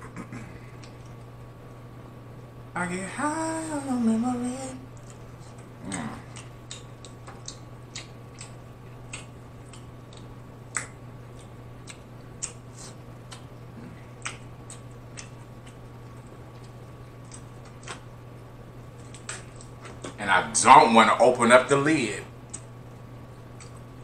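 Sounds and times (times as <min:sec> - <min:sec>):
steady low hum: 0:00.0 - 0:24.0
wet chewing clicks and smacks: 0:00.7 - 0:01.3, 0:04.9 - 0:18.2, 0:19.0 - 0:20.2, 0:22.5 - 0:22.8, 0:23.4 - 0:24.0.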